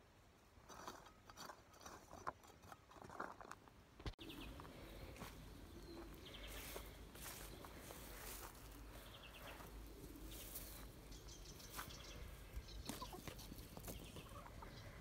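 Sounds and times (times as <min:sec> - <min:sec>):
trowel scraping stony soil: 0:00.6 - 0:03.7
small birds chirping: 0:04.1 - 0:15.0.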